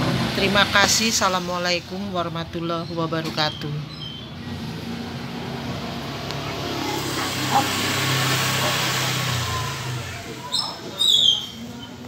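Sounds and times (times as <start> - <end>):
vehicle engine hum passing: 0.0 - 12.0
road hiss: 4.5 - 11.7.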